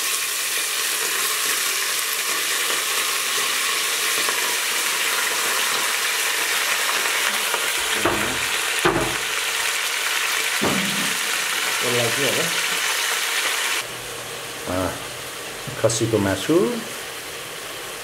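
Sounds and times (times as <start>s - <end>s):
meat sizzling in hot oil: 0.0s - 18.0s
dull knocks: 7.8s - 9.2s, 10.6s - 11.3s.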